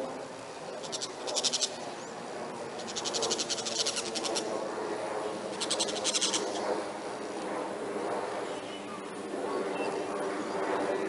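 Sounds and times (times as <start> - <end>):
low background noise: 0.0 - 11.0
animal chattering trills: 0.8 - 1.9, 2.8 - 4.5, 5.5 - 6.6.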